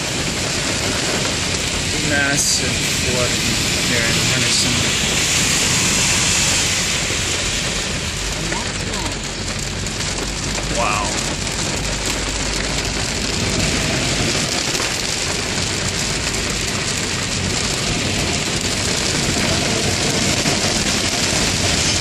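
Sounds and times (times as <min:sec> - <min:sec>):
rain hissing on car: 0:00.0 - 0:22.0
tyres through floodwater: 0:00.0 - 0:22.0.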